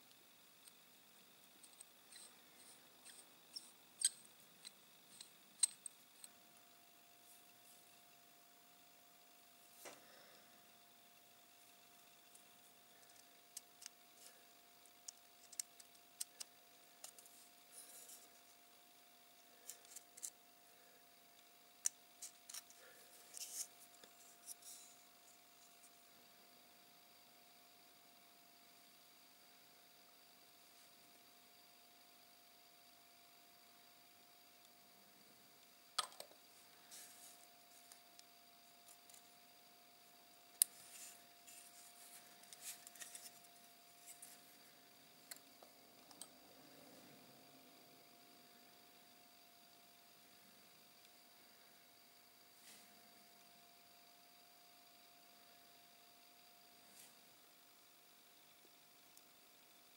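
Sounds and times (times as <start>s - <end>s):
plastic parts clicking together: 15.0s - 17.3s
plastic parts rubbing and scraping: 15.0s - 18.6s, 19.6s - 20.4s, 21.8s - 25.0s, 40.6s - 44.5s.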